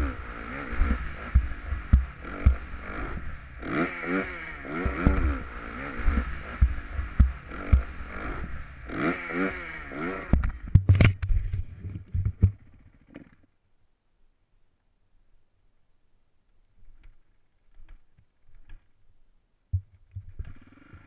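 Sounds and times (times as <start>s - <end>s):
dirt bike engine revving: 0.0s - 10.7s, 20.4s - 21.0s
bike thumping over rough ground: 0.8s - 3.3s, 4.7s - 5.5s, 6.1s - 8.3s, 10.3s - 13.4s, 19.7s - 20.7s
sharp knocks: 1.3s - 2.7s, 6.6s - 8.0s.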